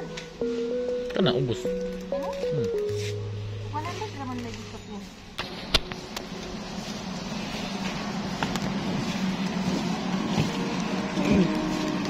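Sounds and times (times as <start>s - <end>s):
store hum: 0.0s - 12.0s
shopping cart rolling on concrete: 6.3s - 12.0s.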